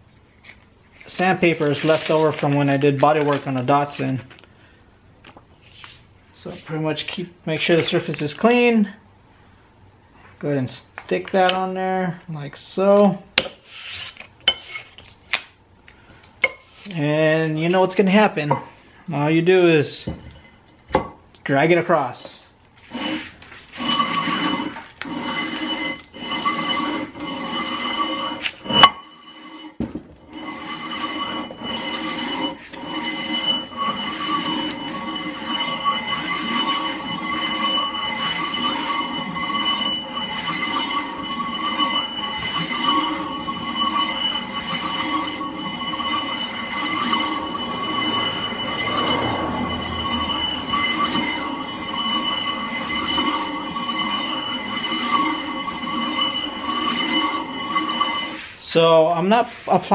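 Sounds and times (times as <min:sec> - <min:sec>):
sandpaper scraping on metal: 0:01.6 - 0:02.5, 0:22.8 - 0:58.8
steady high-pitched whine: 0:23.9 - 0:58.4.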